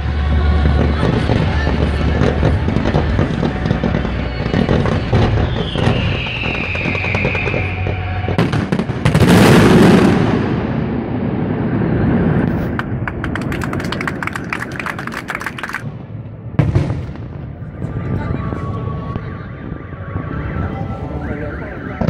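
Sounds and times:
fireworks bangs and crackles: 0:00.0 - 0:22.0
falling firework whistle: 0:03.2 - 0:10.2.

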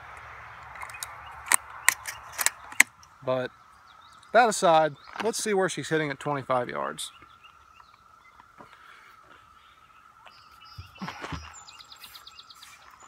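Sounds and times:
shotgun handling clicks: 0:00.6 - 0:03.1.

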